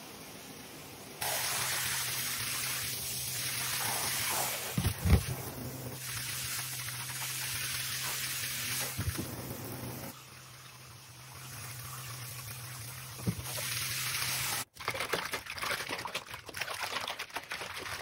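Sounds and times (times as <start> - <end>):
shower water spraying into bathtub: 1.2 - 14.7.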